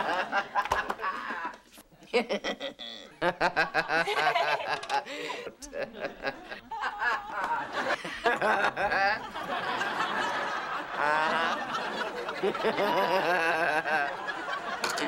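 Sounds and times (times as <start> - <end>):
woman laughing: 1.0 - 1.6, 2.2 - 9.4.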